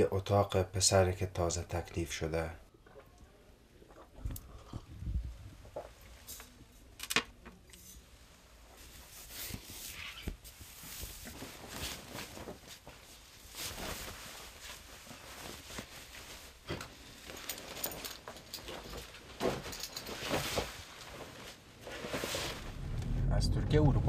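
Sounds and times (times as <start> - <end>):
clothing rustling: 7.8 - 23.1.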